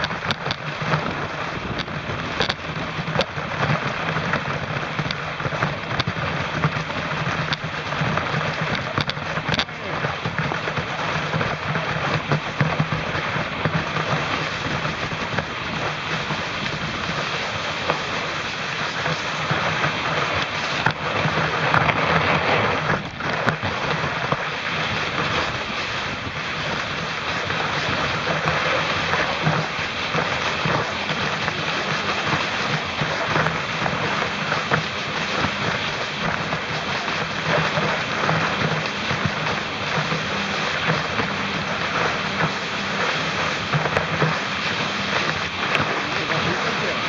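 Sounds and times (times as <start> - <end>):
skis scraping over snow: 0.0 - 47.0
wind buffeting microphone: 0.0 - 47.0.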